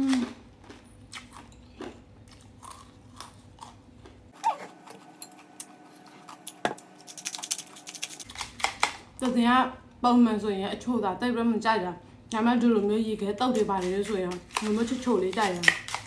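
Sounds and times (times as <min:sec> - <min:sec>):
chewing and crunching ice: 0:00.6 - 0:08.6.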